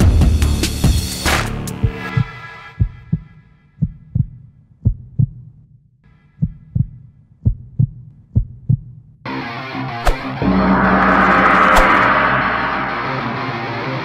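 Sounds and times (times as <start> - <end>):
music: 0.0 - 2.6, 9.3 - 14.0
loud sustained sound: 10.4 - 14.0.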